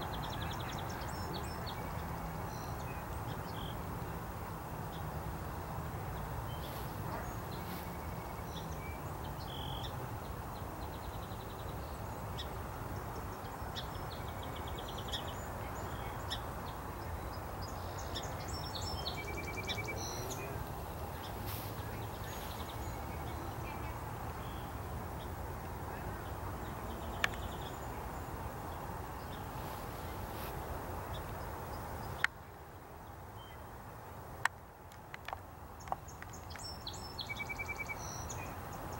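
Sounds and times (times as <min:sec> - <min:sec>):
small birds chirping and trilling: 0:06.1 - 0:32.3.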